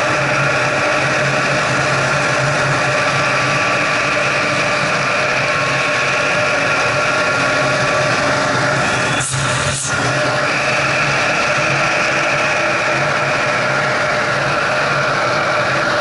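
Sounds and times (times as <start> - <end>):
snowmobile engine droning: 0.0 - 16.0.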